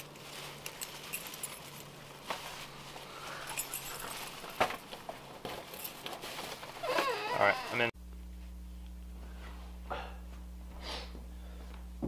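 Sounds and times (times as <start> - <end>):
jacket fabric rustling: 0.0 - 7.9
keys clinking: 0.6 - 2.0, 3.4 - 4.6.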